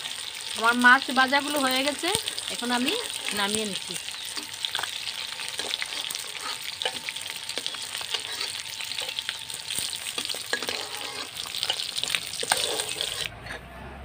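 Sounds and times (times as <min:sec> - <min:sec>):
fish sizzling in hot oil: 0:00.0 - 0:13.3.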